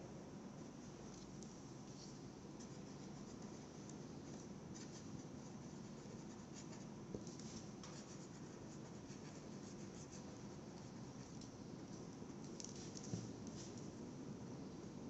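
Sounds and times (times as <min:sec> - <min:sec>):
marker pen scratching on paper: 0:04.7 - 0:11.0.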